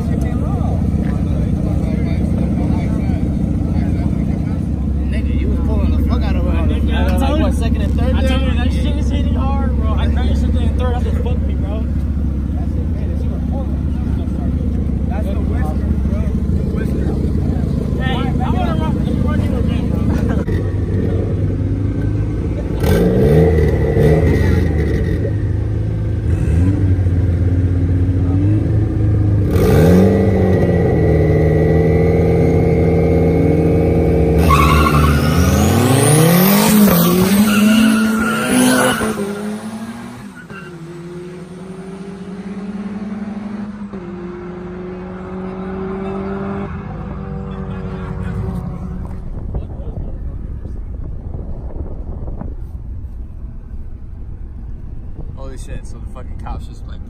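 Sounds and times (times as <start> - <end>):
car engines revving: 0.0 - 57.0
cars accelerating through gears: 13.5 - 49.6.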